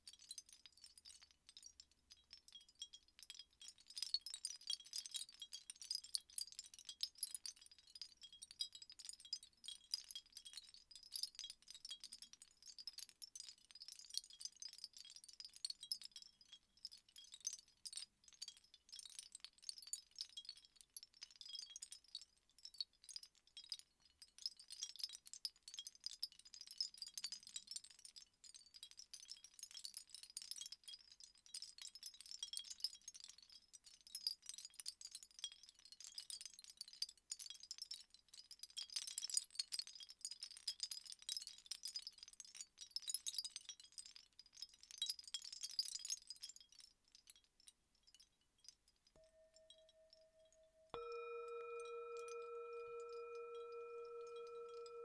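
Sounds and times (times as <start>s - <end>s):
wind chime tinkling: 45.0s - 55.0s.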